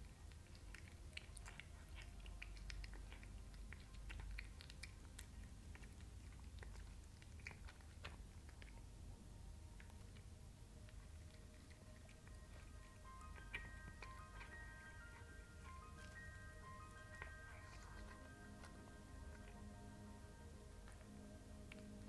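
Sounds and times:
jaw clicks and smacks: 0:00.0 - 0:08.9
cat chewing: 0:00.0 - 0:22.0.

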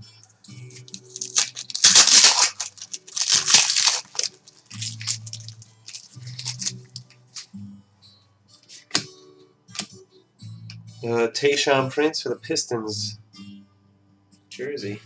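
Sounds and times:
wrapper tearing and crinkling: 0:00.8 - 0:07.1.

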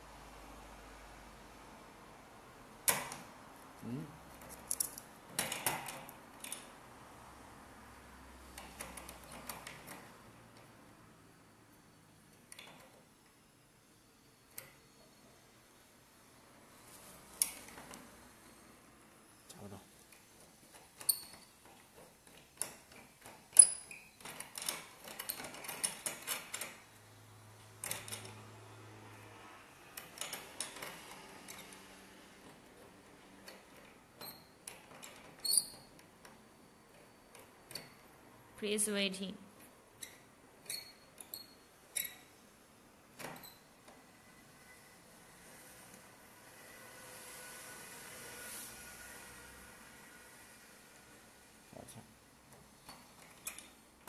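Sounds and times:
metal lock clicks and rattles: 0:22.3 - 0:26.8.

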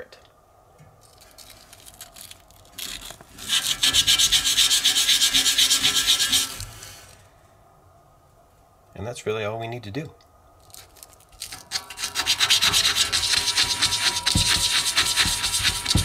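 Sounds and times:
sandpaper rubbing on metal: 0:02.8 - 0:07.2, 0:11.4 - 0:16.0.

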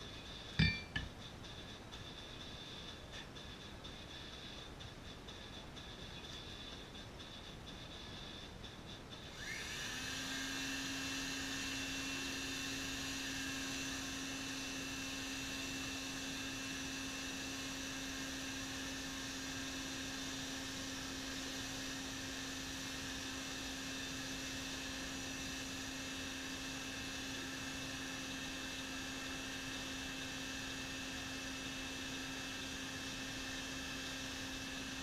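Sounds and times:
electric air blower running: 0:09.3 - 0:35.0.

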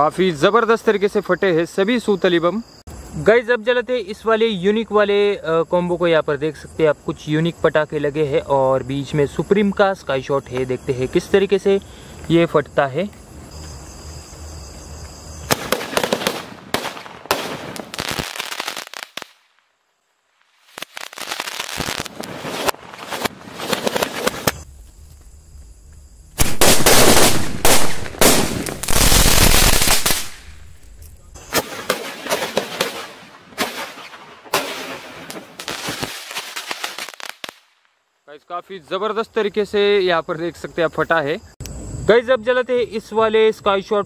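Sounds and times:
fireworks crackling and hissing: 0:15.4 - 0:38.0
firecrackers cracking and banging: 0:15.5 - 0:19.4, 0:20.7 - 0:24.6, 0:26.4 - 0:30.8, 0:31.5 - 0:37.6.

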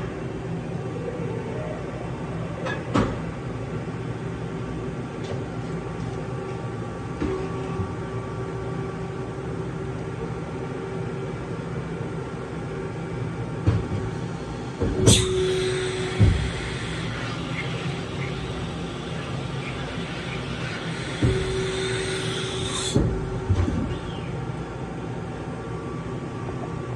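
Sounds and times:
machine hum with whine: 0:00.0 - 0:26.9
machine clunks: 0:14.8 - 0:16.6
sharp clack with hiss: 0:15.1 - 0:16.6.

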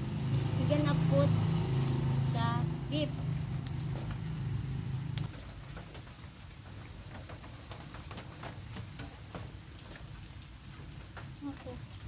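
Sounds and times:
wood fire crackling and popping: 0:03.0 - 0:12.0.

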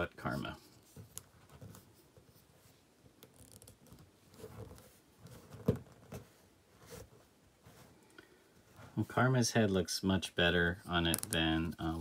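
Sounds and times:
plastic figure clicks and rubs: 0:11.0 - 0:11.8.

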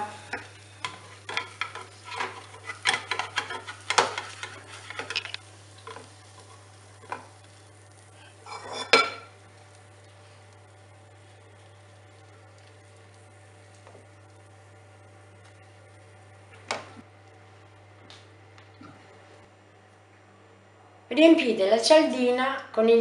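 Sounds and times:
steady low hum: 0:00.0 - 0:22.9
spatula scraping frying pan: 0:00.2 - 0:07.4, 0:08.2 - 0:09.3.

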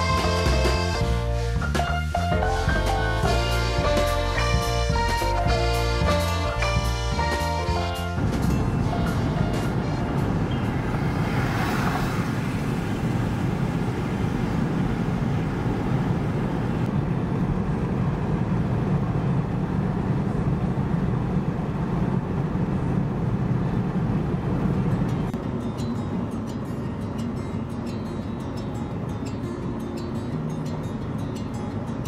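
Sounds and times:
road and engine rumble in car: 0:00.0 - 0:32.0.

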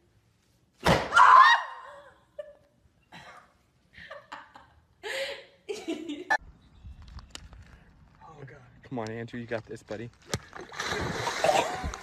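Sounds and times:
sharp smack: 0:00.8 - 0:01.1
woman shrieking: 0:01.1 - 0:02.1.

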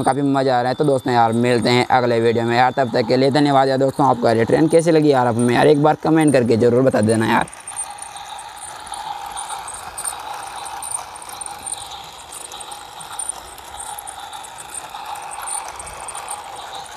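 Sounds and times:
toy train motor whir: 0:00.0 - 0:16.9
light clicks of wheels: 0:07.2 - 0:16.9.

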